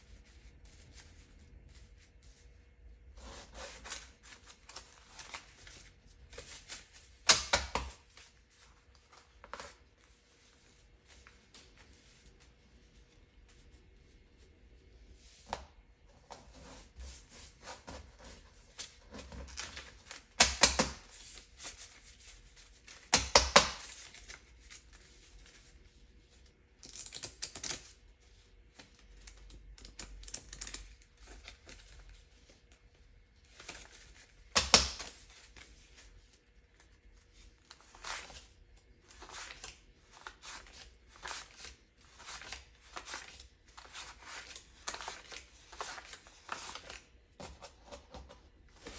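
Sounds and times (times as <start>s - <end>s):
paper banknotes rustling: 3.2s - 14.2s, 33.4s - 48.2s.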